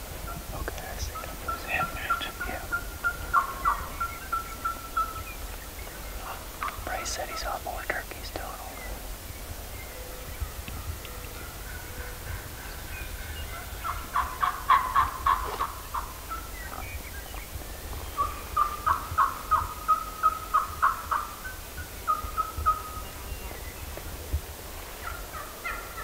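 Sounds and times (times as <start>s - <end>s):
turkey gobbling: 0.3s - 6.8s, 10.1s - 17.0s, 18.2s - 23.1s, 25.0s - 26.0s.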